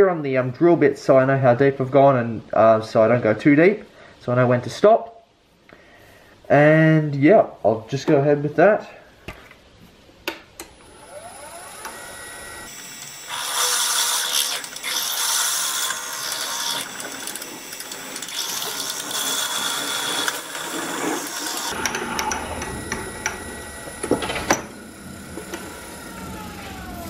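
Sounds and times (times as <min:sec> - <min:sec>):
drill bit boring hiss: 0:10.8 - 0:27.0
wood lathe spinning: 0:10.8 - 0:27.0.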